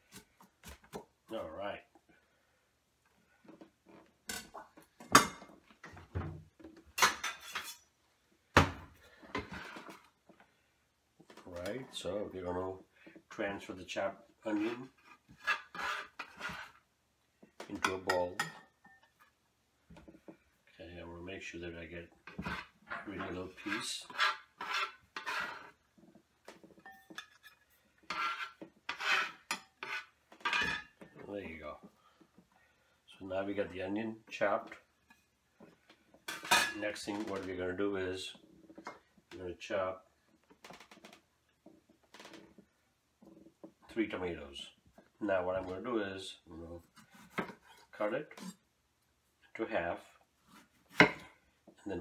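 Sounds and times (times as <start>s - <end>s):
metal scraper on wooden board: 14.6s - 16.8s, 22.3s - 25.8s, 27.4s - 30.7s.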